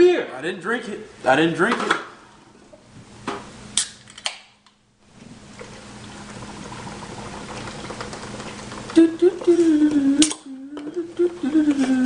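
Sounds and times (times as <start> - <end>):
beer pouring into plastic bowl: 5.2 - 9.6.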